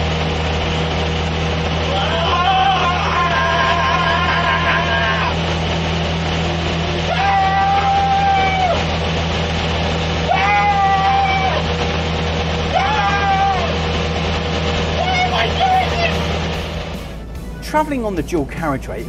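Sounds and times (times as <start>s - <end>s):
lorry engine droning: 0.0s - 19.0s
held pitched note: 15.0s - 19.0s.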